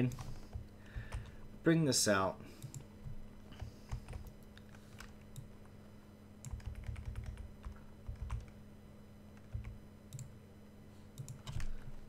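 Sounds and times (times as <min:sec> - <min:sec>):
computer keyboard typing: 0:00.0 - 0:01.3, 0:02.6 - 0:05.5, 0:06.4 - 0:08.6, 0:09.4 - 0:10.3, 0:11.2 - 0:12.0.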